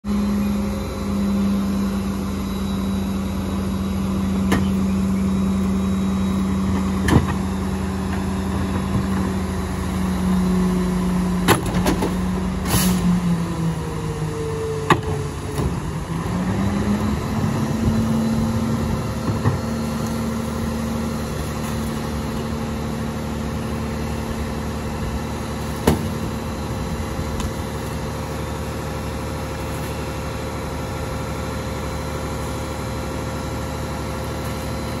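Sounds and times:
garbage truck diesel engine idling: 0.1 - 35.0
trash knocking into hopper: 25.8 - 26.4.

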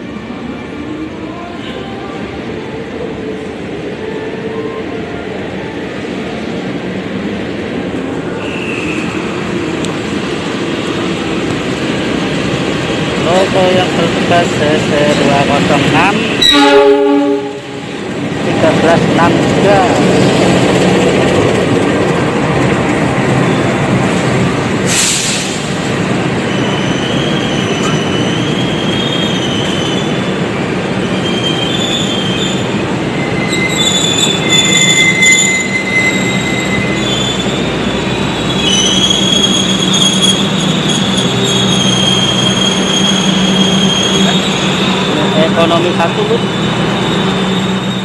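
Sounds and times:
train rumble: 0.0 - 48.0
train wheels squealing: 8.3 - 9.3, 26.4 - 30.2, 31.0 - 48.0.

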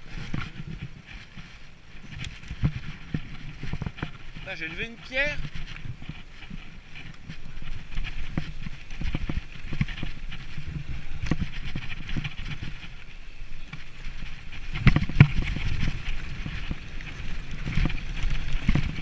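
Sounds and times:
mountain bike rattling on rough trail: 0.0 - 19.0
wind rumble on microphone: 0.0 - 19.0.

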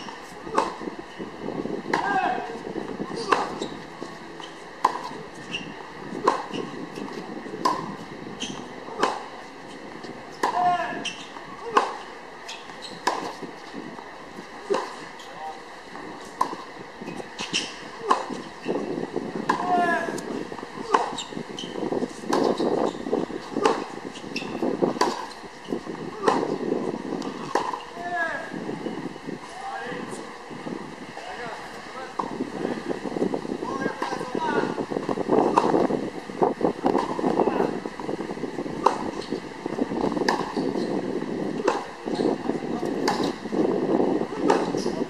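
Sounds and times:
tennis balls struck with rackets: 0.0 - 1.0, 1.8 - 4.1, 4.8 - 13.6, 14.5 - 15.1, 15.9 - 28.1, 32.1 - 32.8, 33.6 - 36.0, 36.7 - 45.0.

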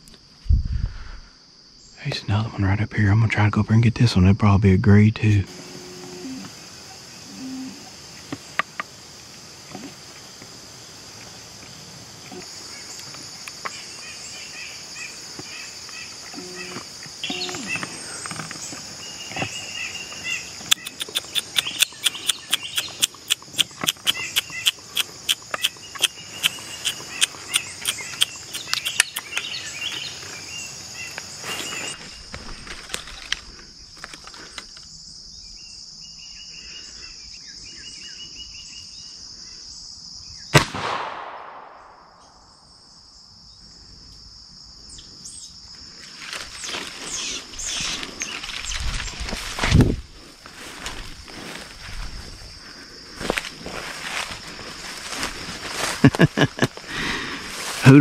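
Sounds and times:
high-pitched insect chorus: 0.0 - 58.0
bird chirps: 13.7 - 32.7, 46.5 - 49.2
rapid sharp loud clicks: 20.7 - 29.5.

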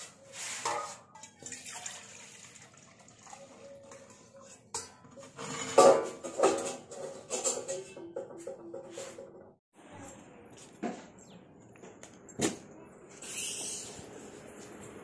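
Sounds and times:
steel vessels clanking: 0.6 - 8.9
liquid pouring into steel vessel: 1.2 - 4.0.

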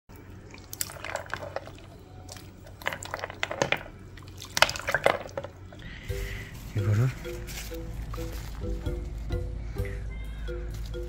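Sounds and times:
wet sloshing: 0.1 - 9.2
ice cubes clattering in bowl: 0.7 - 5.6.

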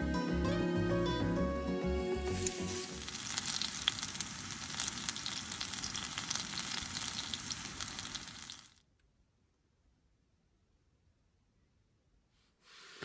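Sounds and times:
fish sizzling in oil: 2.3 - 8.8.

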